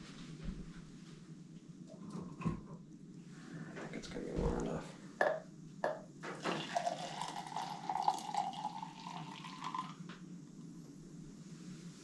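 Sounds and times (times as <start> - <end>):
hot water pouring into a mug: 6.3 - 10.0.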